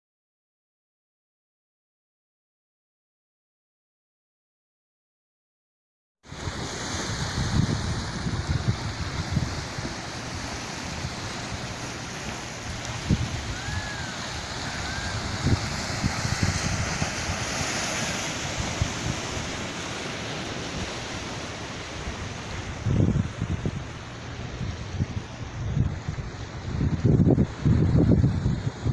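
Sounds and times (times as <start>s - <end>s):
surf breaking against rocks: 6.3s - 23.6s
wind buffeting microphone: 6.4s - 28.9s.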